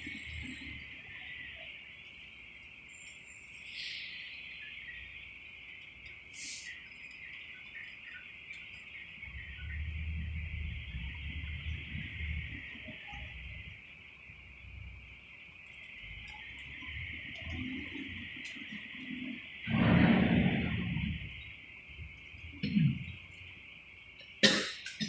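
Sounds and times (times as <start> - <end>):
insects droning: 0.0 - 25.0
low rumble: 19.0 - 23.4.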